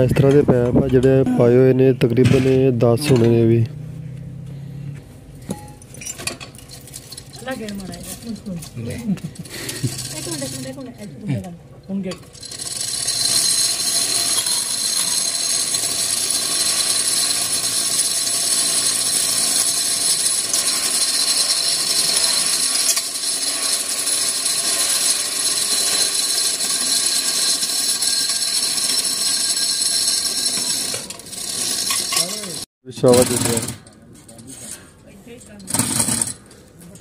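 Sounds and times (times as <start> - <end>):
chain rattling: 5.7 - 11.1, 12.1 - 34.5
ratchet pawl clicking: 12.1 - 32.7.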